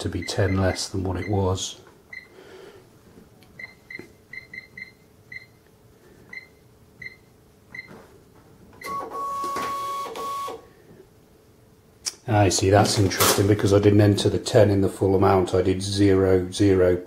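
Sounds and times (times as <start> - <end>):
cash register key beeps: 8.8 - 10.6.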